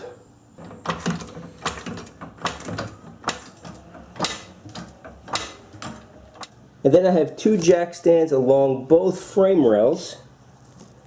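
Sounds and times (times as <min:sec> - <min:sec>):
floor jack handle clanking: 0:00.6 - 0:06.5.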